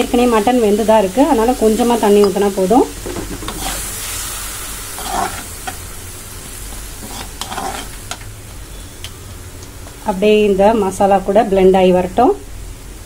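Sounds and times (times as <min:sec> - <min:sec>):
food sizzling in a pan: 0:00.0 - 0:13.0
ladle scraping a pan: 0:03.4 - 0:04.2, 0:04.9 - 0:05.8, 0:07.0 - 0:08.0.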